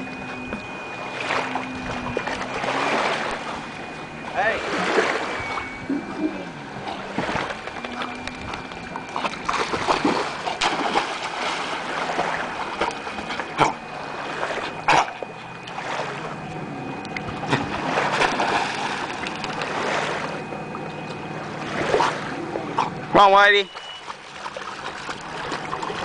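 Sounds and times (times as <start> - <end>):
dogs splashing in water: 4.6 - 5.4, 6.9 - 16.3, 17.3 - 20.4, 21.5 - 26.0.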